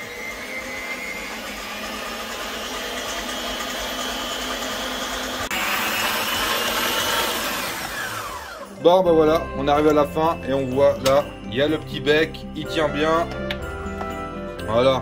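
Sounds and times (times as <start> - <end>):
stand mixer whisking egg white: 0.0 - 11.2.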